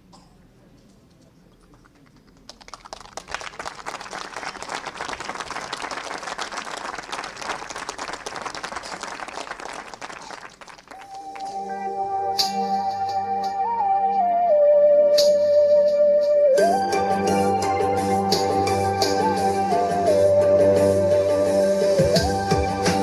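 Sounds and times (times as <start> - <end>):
audience applauding: 1.6 - 11.6
music with held tone: 11.0 - 23.0.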